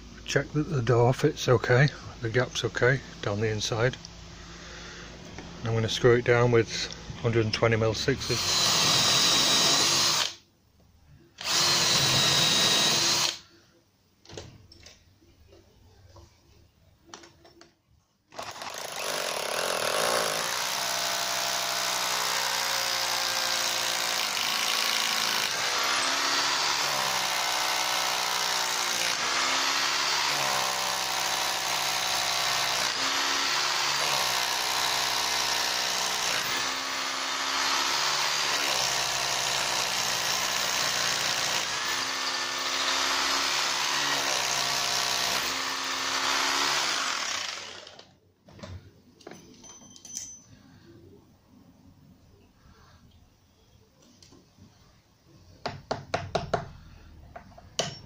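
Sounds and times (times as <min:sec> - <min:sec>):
electric drill boring into wood: 0:08.2 - 0:10.4, 0:11.4 - 0:13.4, 0:18.3 - 0:48.1.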